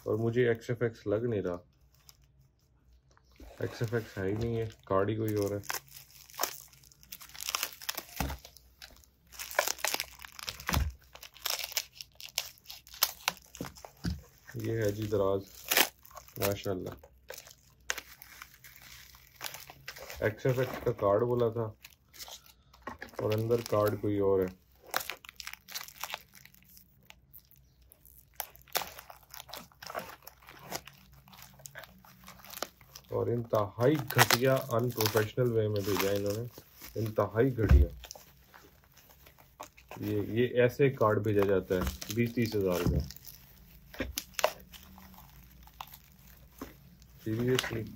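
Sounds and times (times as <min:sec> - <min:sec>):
bubble wrap crinkling: 0:01.6 - 0:47.9.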